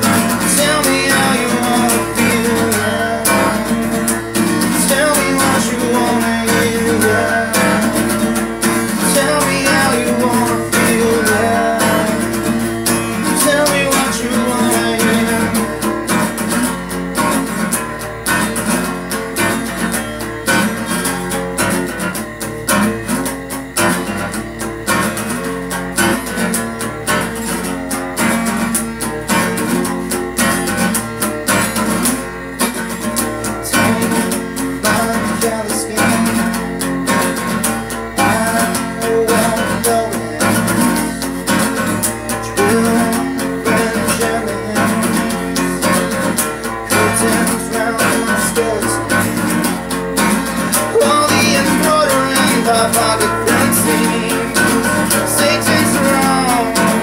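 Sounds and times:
acoustic guitar playing: 0.0 - 57.0.

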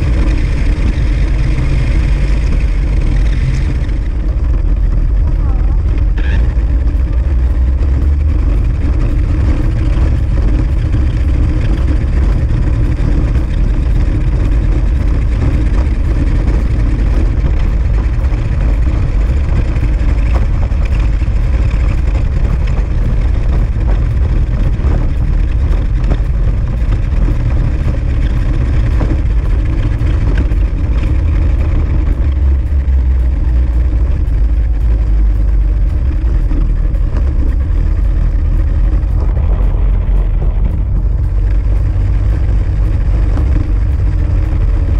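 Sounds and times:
toy car rumbling over asphalt: 0.0 - 44.9.

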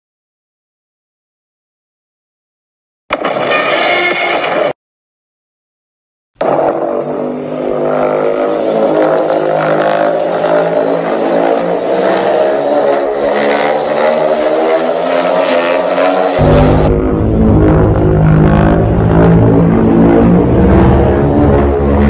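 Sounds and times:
deep monster drone with crackle: 6.4 - 22.0.

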